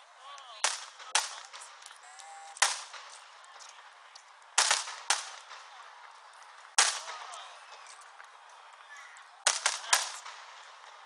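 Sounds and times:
firework shells bursting: 0.6s - 5.8s, 6.7s - 7.8s, 9.4s - 11.0s.

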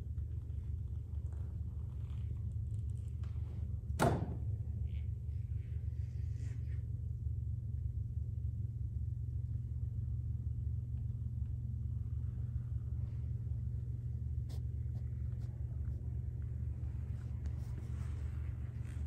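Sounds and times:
low background rumble: 0.0s - 19.0s.

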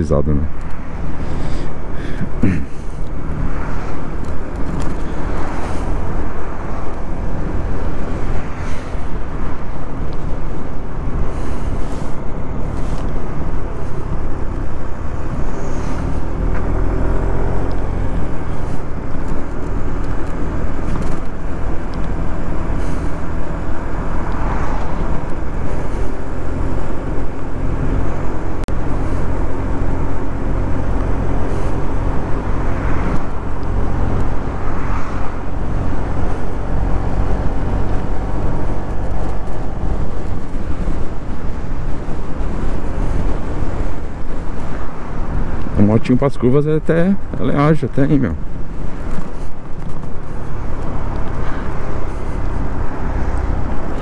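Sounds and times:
wind noise on microphone: 0.5s - 45.9s, 48.3s - 54.0s.

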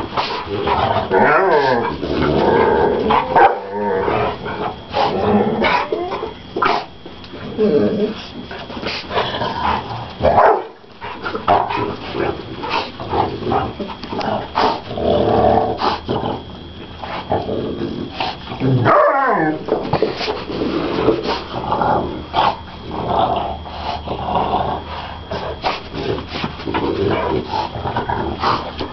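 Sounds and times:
dogs growling: 0.0s - 28.9s
dogs barking and yipping: 3.0s - 6.9s, 10.2s - 11.8s.

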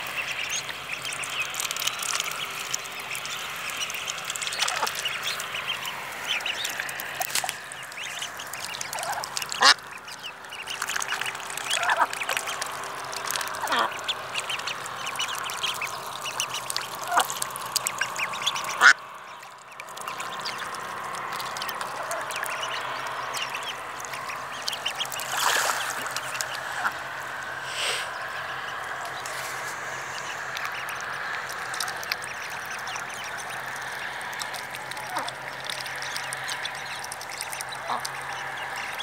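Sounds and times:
ducklings peeping: 0.0s - 39.0s
duck calls: 3.2s - 9.9s, 13.5s - 15.9s, 17.9s - 19.0s, 37.5s - 39.0s.

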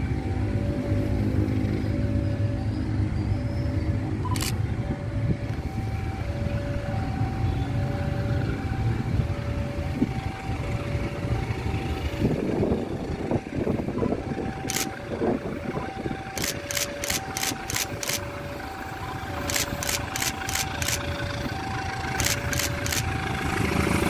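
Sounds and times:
diesel locomotive rumble: 0.0s - 24.0s
sharp clicks: 16.4s - 18.3s, 19.4s - 21.1s, 22.1s - 23.1s.

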